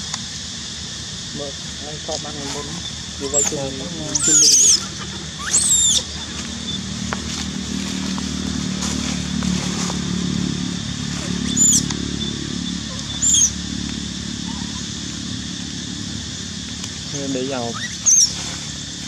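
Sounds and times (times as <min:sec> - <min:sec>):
low engine hum: 0:00.0 - 0:19.0
baby monkey squealing: 0:02.5 - 0:06.9, 0:11.1 - 0:13.6, 0:14.4 - 0:15.0, 0:17.5 - 0:18.8.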